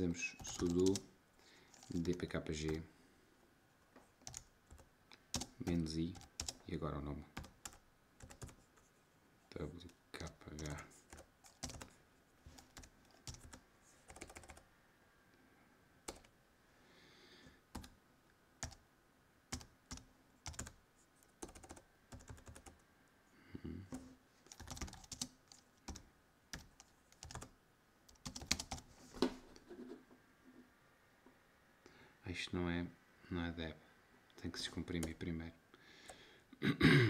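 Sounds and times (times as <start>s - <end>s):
computer keyboard typing: 0.3s - 1.0s, 1.7s - 2.3s, 4.2s - 6.7s, 7.4s - 8.7s, 10.2s - 12.0s, 12.6s - 14.6s, 16.1s - 16.3s, 17.7s - 18.0s, 18.6s - 18.8s, 19.5s - 20.8s, 21.4s - 22.8s, 24.5s - 27.5s, 28.1s - 28.9s.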